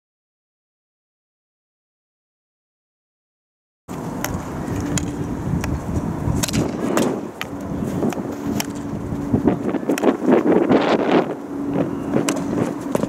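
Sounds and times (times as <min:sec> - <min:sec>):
faint steady hum: 0:03.9 - 0:13.0
open-air background noise: 0:03.9 - 0:13.0
hockey stick striking ball: 0:04.2 - 0:09.0, 0:12.2 - 0:13.0.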